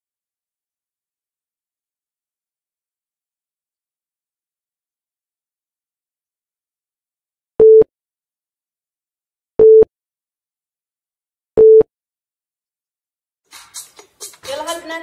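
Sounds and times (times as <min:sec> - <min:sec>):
countdown timer beeps: 0:09.6 - 0:09.9, 0:11.6 - 0:11.9.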